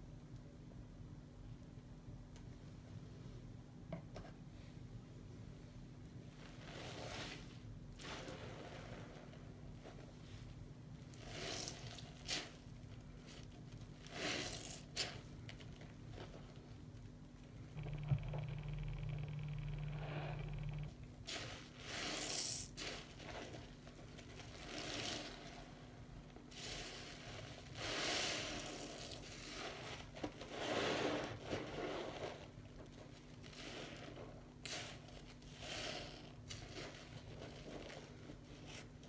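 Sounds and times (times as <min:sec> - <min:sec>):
sponges squishing in soapy water: 0:06.3 - 0:17.2, 0:21.2 - 0:39.0.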